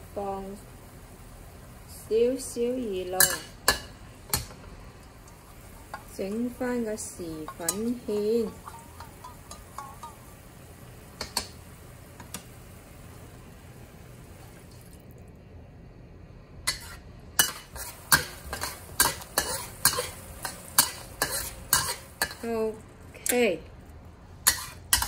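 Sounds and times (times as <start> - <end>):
metal clanking on wok: 3.1 - 10.4, 11.2 - 11.6, 16.7 - 23.5, 24.4 - 25.0
ladle stirring in metal wok: 3.2 - 10.4, 16.7 - 22.5, 24.4 - 25.0
sauce simmering: 3.6 - 15.6.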